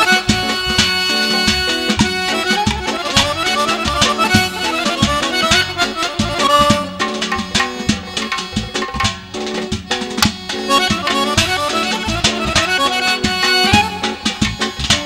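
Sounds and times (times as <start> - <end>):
accordion folk melody: 0.0 - 15.0
drum beats: 0.0 - 15.0.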